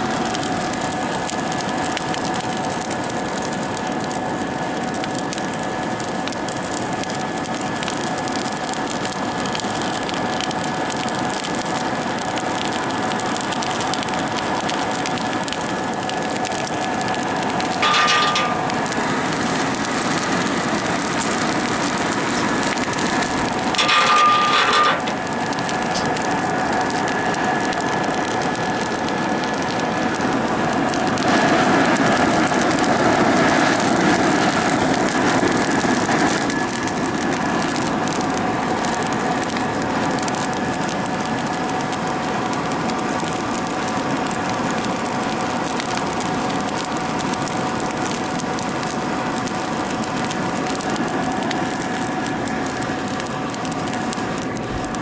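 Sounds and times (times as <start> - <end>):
fire crackling: 0.0 - 55.0
blower motor whine: 12.7 - 40.0.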